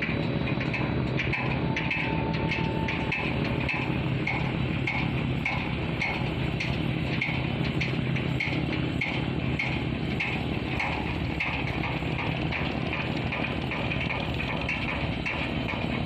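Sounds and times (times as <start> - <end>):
boat diesel engine running: 0.0 - 16.0
light regular ticking: 0.0 - 16.0.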